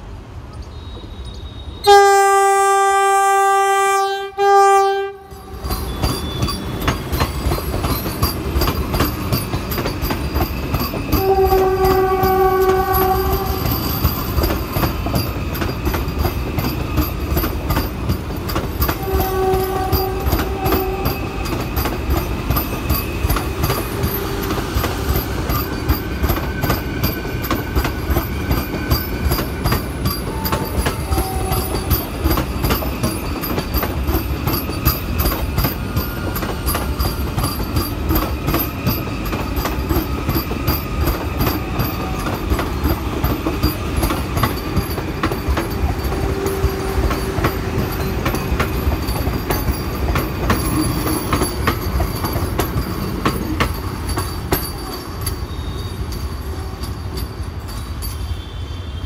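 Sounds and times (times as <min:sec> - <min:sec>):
train rumbling past: 0:00.0 - 0:59.0
train horn: 0:00.7 - 0:06.5, 0:11.1 - 0:13.8, 0:18.9 - 0:21.5, 0:23.8 - 0:24.6, 0:30.3 - 0:32.1, 0:45.6 - 0:47.8
wheels clacking over rail joints: 0:05.4 - 0:58.2.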